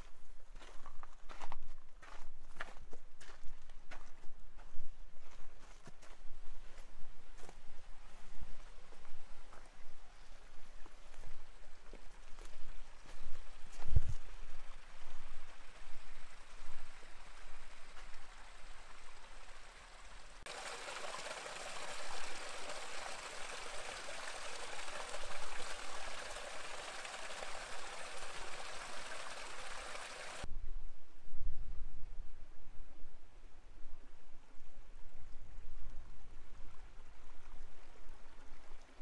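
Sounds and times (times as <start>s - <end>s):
stream trickling over rocks: 5.6s - 30.5s, 35.6s - 39.0s.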